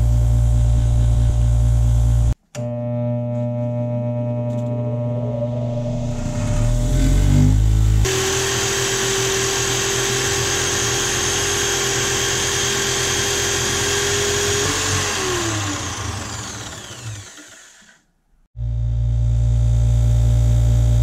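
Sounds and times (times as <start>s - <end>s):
rotary tool whining: 5.6s - 18.0s.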